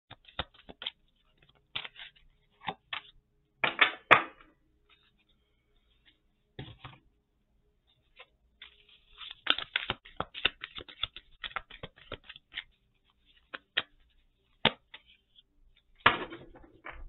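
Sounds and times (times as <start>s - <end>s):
cards tapping and clicking: 0.1s - 4.5s, 8.1s - 15.4s
cards clattering: 0.1s - 5.1s, 8.1s - 17.0s.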